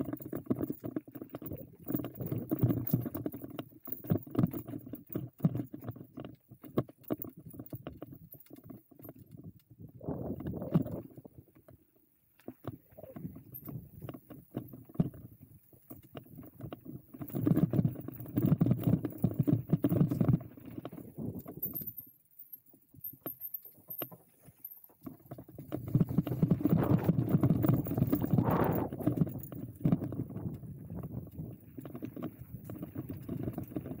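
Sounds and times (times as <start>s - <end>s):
bike rattling: 12.4s - 34.0s.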